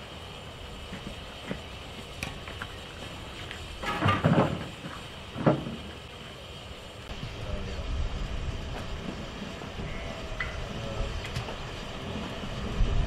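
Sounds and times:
steam hissing: 0:00.0 - 0:13.0
wind rumble on microphone: 0:07.1 - 0:13.0.

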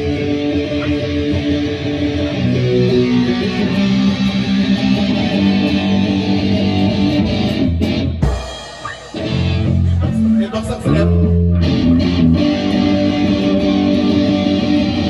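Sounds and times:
drum kit: 0:00.0 - 0:15.0
electric guitar: 0:00.0 - 0:15.0.

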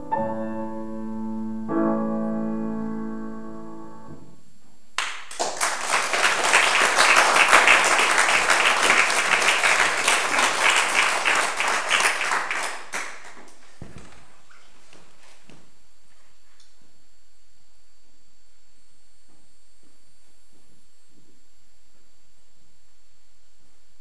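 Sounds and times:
piano chord: 0:00.0 - 0:04.4
audience applause: 0:05.0 - 0:13.8.

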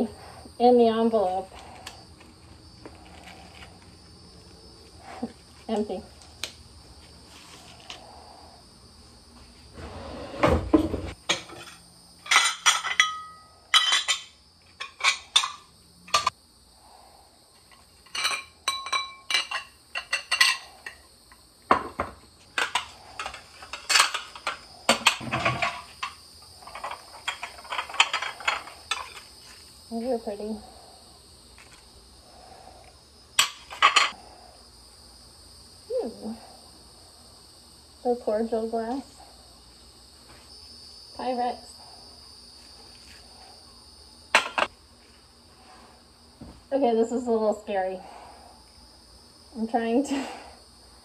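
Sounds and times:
dishes and glasses clinking: 0:11.3 - 0:15.6, 0:18.0 - 0:21.0.

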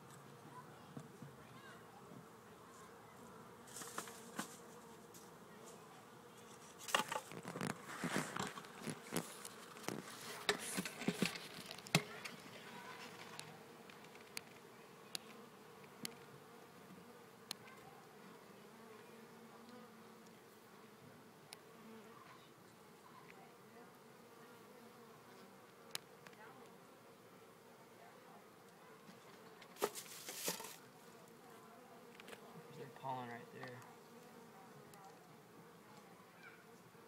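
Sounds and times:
honeybees buzzing: 0:00.0 - 0:37.0
crackling clicks and knocks: 0:06.8 - 0:15.3.

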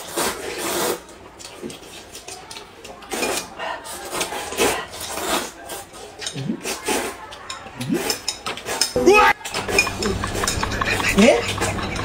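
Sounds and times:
noodles being slurped: 0:00.0 - 0:08.8.

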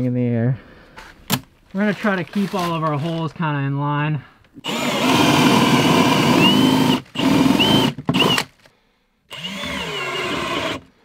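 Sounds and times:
cordless drill boring wood: 0:04.6 - 0:08.6, 0:09.3 - 0:10.9.

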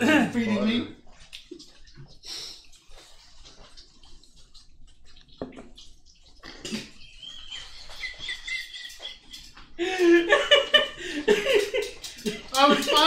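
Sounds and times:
person squealing with laughter: 0:06.8 - 0:10.3
people laughing: 0:06.8 - 0:13.0.

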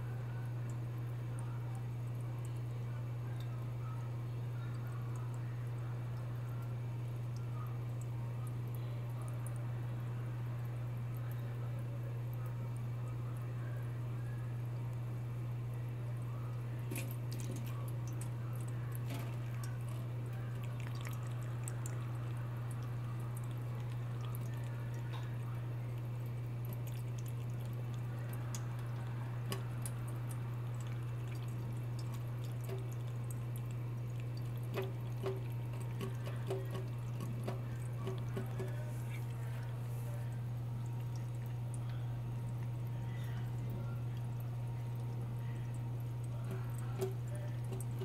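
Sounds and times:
steady low hum: 0:00.0 - 0:48.0
water trickling into a metal sink: 0:16.1 - 0:48.0
water drip ticks: 0:16.9 - 0:39.7, 0:40.8 - 0:48.0.

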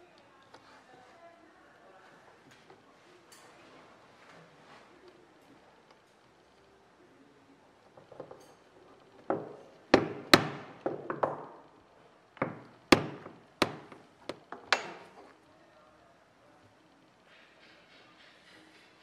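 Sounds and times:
hole punch knocks on leather: 0:09.4 - 0:11.4, 0:12.4 - 0:14.0.

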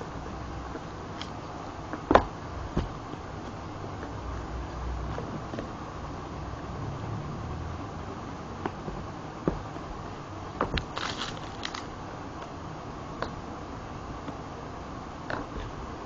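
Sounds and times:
steady background noise: 0:00.0 - 0:16.0
plastic wrap crinkling: 0:10.8 - 0:11.9.

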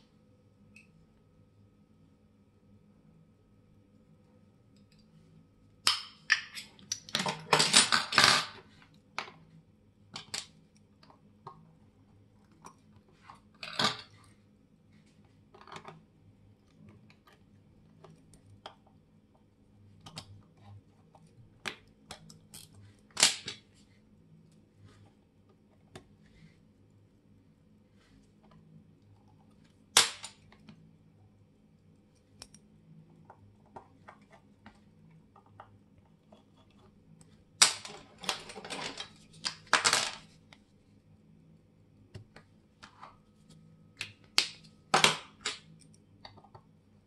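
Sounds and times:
small metal parts clicking and tapping: 0:05.8 - 0:08.6, 0:21.1 - 0:23.6.

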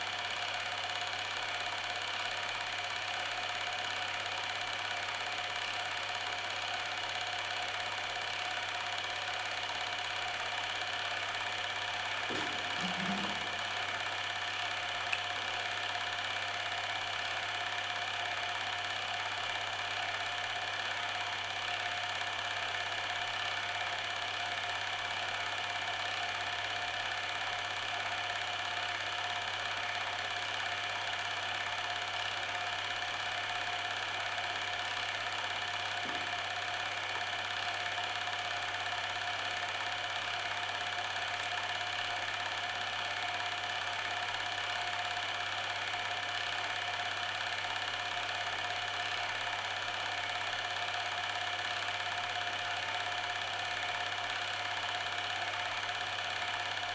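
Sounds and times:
mechanical whirring hum: 0:12.3 - 0:13.9.

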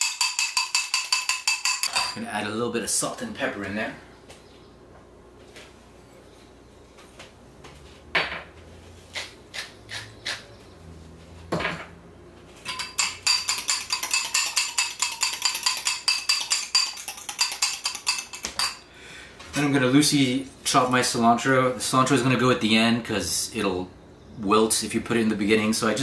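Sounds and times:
fork beating eggs in ceramic bowl: 0:00.0 - 0:02.2, 0:12.7 - 0:18.8.

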